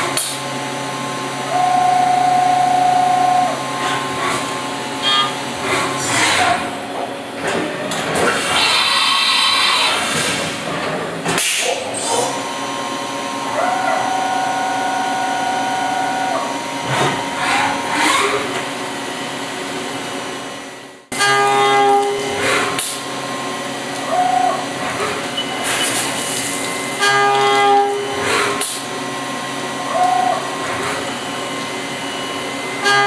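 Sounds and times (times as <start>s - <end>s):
milling machine spindle whine: 12.0s - 19.4s, 26.7s - 33.0s.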